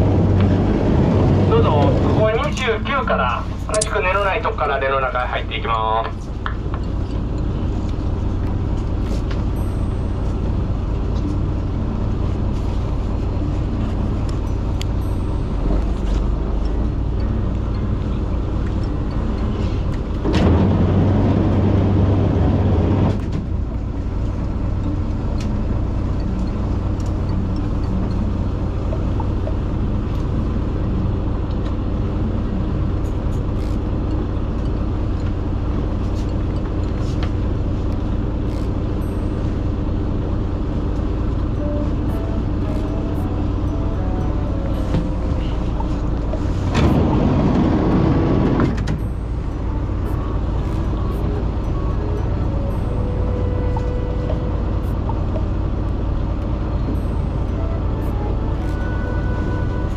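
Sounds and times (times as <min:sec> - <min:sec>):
loud rushing noise: 0:00.0 - 0:02.4, 0:20.2 - 0:23.6, 0:44.8 - 0:49.0
boat engine humming: 0:00.0 - 0:59.9.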